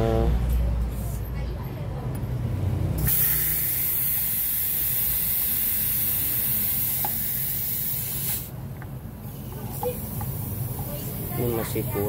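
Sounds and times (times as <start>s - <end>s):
pressurized gas hissing from hose: 3.0s - 8.5s.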